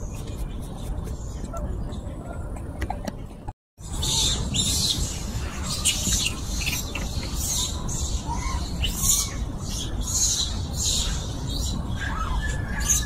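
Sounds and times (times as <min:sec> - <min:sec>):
animal chirps and squeaks: 0:03.8 - 0:13.0.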